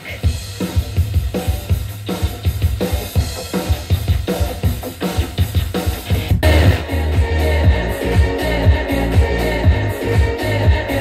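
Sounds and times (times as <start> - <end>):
song over loudspeakers: 6.4 - 11.0.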